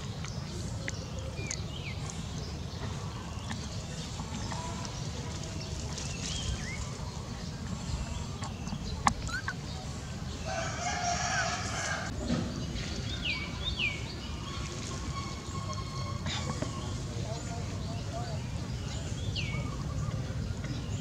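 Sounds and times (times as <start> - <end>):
rooster crowing: 10.4 - 12.1.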